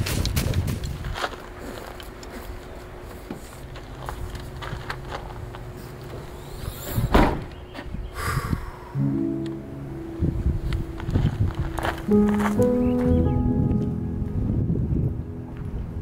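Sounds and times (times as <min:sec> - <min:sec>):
vehicle liftgate slamming shut: 0:07.0 - 0:07.6.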